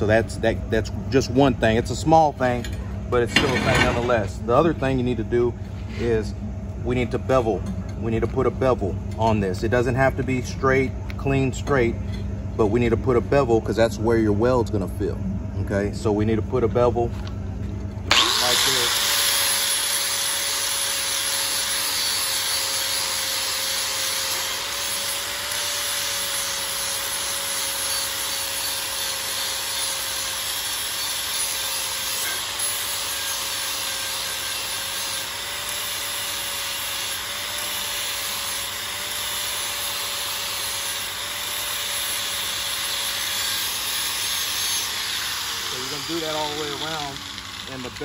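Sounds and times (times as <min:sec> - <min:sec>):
angle grinder grinding metal: 0:18.1 - 0:48.0.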